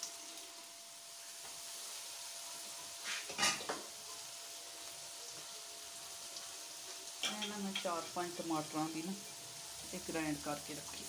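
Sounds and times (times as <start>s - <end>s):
chicken sizzling in a wok: 0.0s - 11.0s
spoon scraping and knocking pan: 3.0s - 3.9s, 7.2s - 8.2s.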